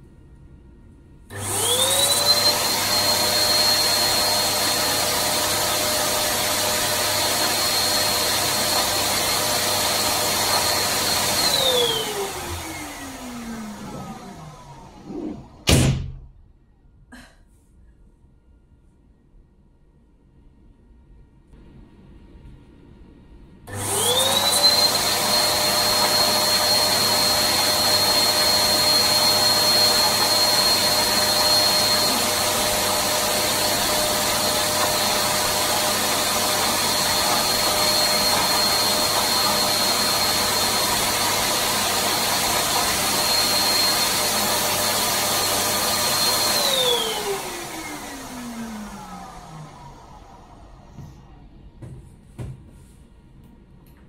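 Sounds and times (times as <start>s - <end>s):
electric balloon pump whining: 1.3s - 15.7s, 23.7s - 51.1s.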